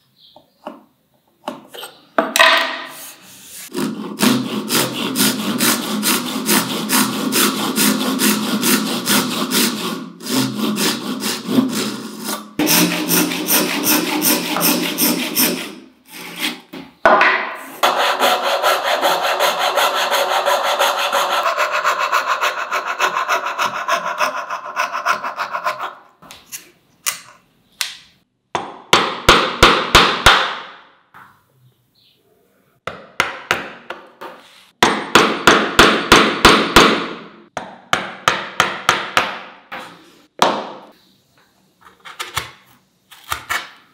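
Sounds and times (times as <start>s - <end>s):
fret saw cutting: 3.7s - 16.7s, 17.8s - 26.0s
handsaw rasping through wood: 3.7s - 16.7s, 17.8s - 26.0s.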